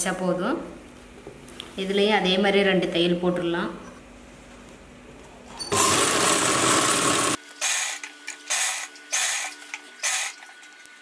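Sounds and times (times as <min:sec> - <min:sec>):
sewing machine stitching: 0:05.7 - 0:07.4.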